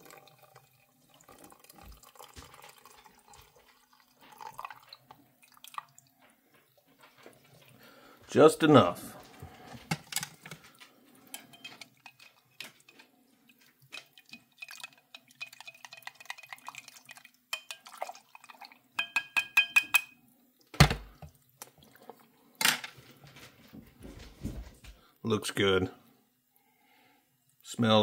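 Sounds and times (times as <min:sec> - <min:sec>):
spoon clinking in a cup: 0:11.3 - 0:13.0, 0:14.0 - 0:16.8, 0:17.5 - 0:18.2, 0:19.0 - 0:20.2.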